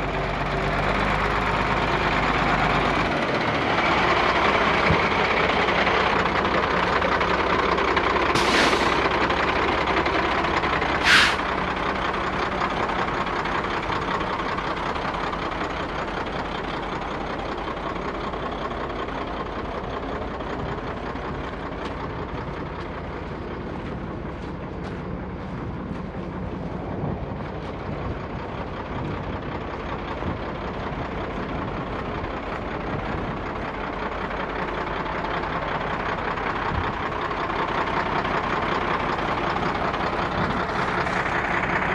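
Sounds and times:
diesel engine idling: 0.0s - 41.9s
air brake hiss: 8.4s - 9.0s, 11.0s - 11.5s.

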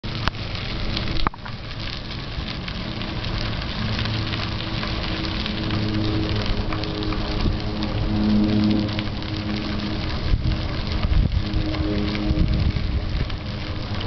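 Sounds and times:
bicycle tyres on crushed stone: 0.0s - 14.0s.

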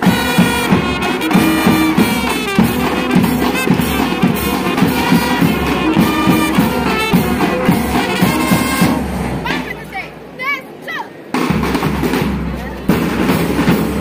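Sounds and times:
trumpets and euphoniums playing: 0.0s - 9.7s
drum beat: 0.0s - 9.9s, 11.3s - 14.0s.

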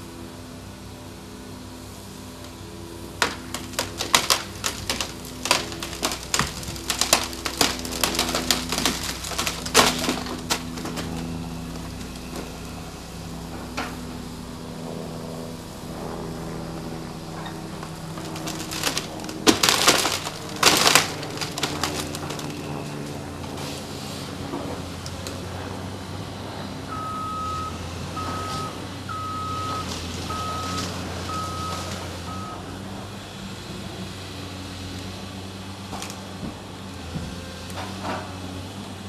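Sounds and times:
excavator diesel engine running: 0.0s - 39.0s
timber cracking and snapping: 3.2s - 12.8s, 17.5s - 23.6s.

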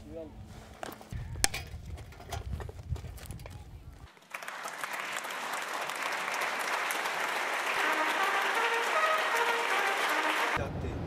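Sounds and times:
audience applauding: 4.1s - 10.6s.

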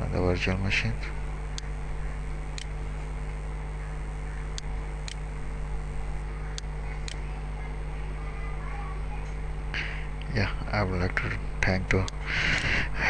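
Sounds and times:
low electrical hum: 0.0s - 13.0s
computer mouse clicks: 2.5s - 2.7s, 6.5s - 7.2s.

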